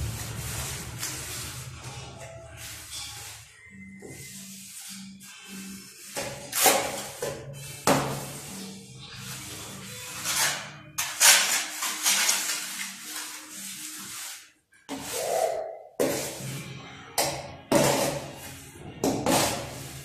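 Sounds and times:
trowel scraping wet mortar: 0.0s - 16.6s, 17.7s - 20.0s
faint background music: 0.0s - 20.0s.

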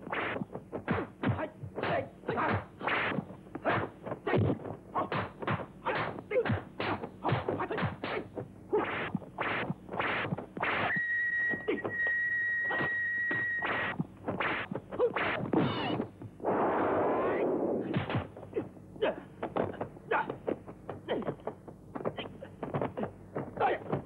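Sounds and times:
punch and kick thwacks: 0.1s - 10.9s, 17.8s - 18.7s.

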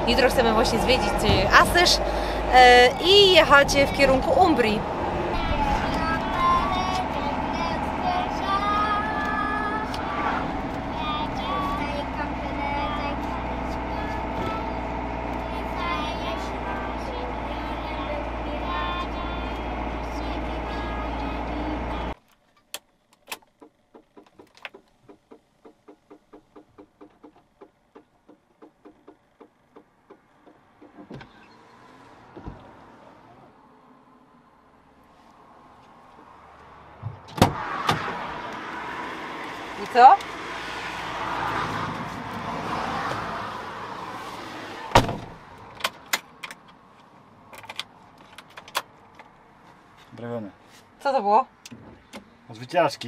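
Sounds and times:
steady rushing noise: 0.0s - 11.9s
vehicle door slamming: 37.0s - 38.8s, 44.7s - 46.3s
light clicks and rattles: 45.7s - 50.3s.

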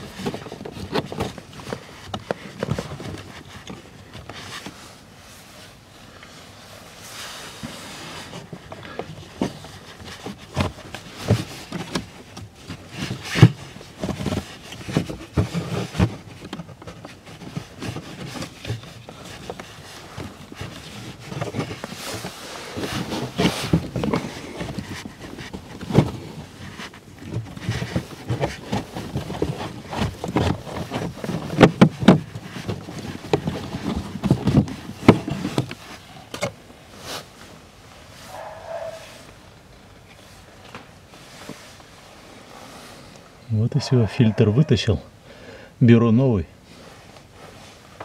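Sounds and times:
air filter knocks and scrapes: 7.6s - 37.3s.

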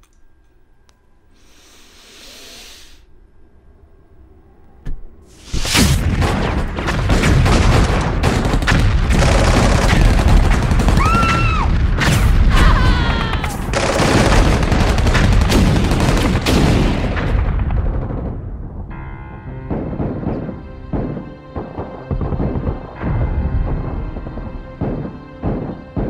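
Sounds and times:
explosion booming and crashing: 5.4s - 20.6s.

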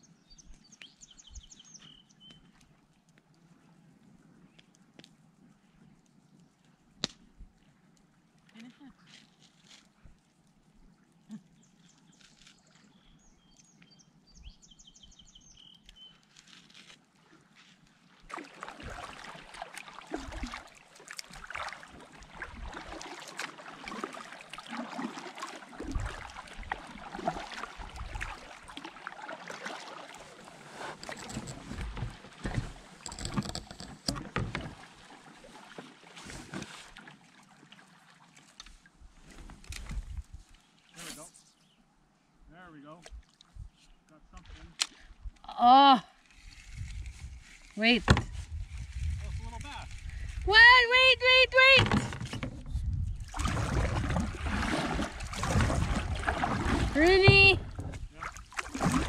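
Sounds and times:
paddle strokes splashing: 16.2s - 33.2s, 33.8s - 39.7s, 53.2s - 59.0s.

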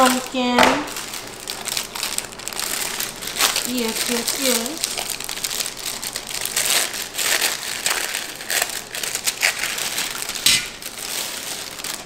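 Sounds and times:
plastic film crinkling: 0.0s - 12.0s.

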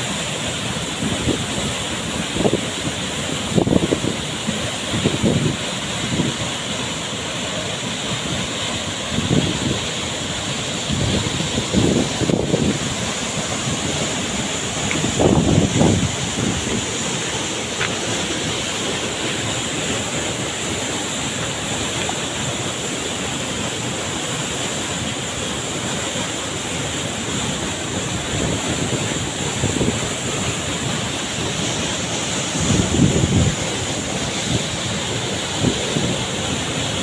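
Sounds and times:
rocky stream flowing: 0.0s - 37.0s
waterfall rushing: 0.0s - 37.0s
wind buffeting microphone: 14.8s - 17.1s, 32.5s - 33.8s.

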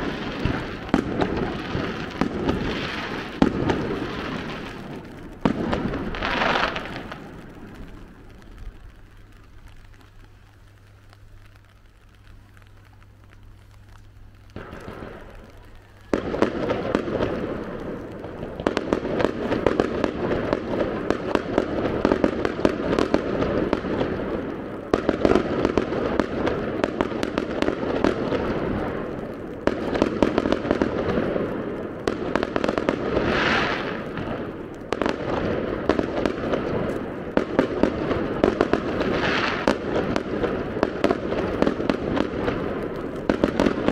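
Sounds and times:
low steady hum: 0.0s - 33.2s
fireworks bangs and crackling: 0.0s - 43.9s.

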